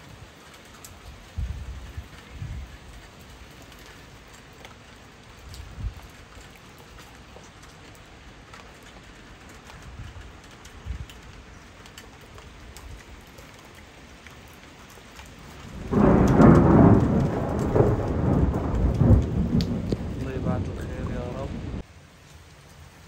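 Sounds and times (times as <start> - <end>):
light rain: 0.0 - 23.0
raindrop ticks: 0.0 - 23.0
thunder clap and rumble: 15.6 - 21.8.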